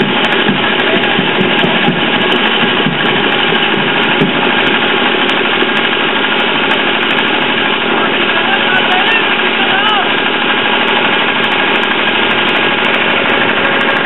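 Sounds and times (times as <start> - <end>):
engine idling: 0.0 - 14.0.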